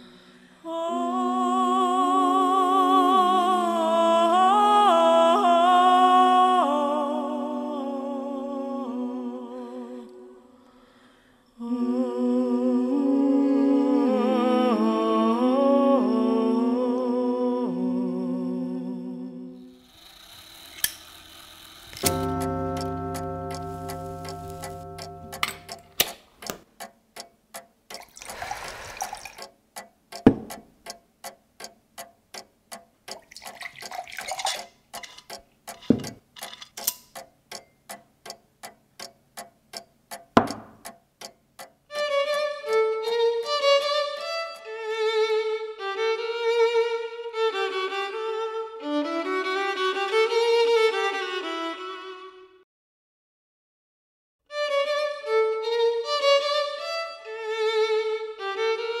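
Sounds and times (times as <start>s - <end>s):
solo violin melody: 22.0s - 25.9s, 41.9s - 52.6s, 54.5s - 59.0s
clock ticking: 22.0s - 28.4s, 29.4s - 34.2s, 34.8s - 36.4s, 37.0s - 42.8s
knocks: 30.2s - 30.6s, 40.4s - 40.8s.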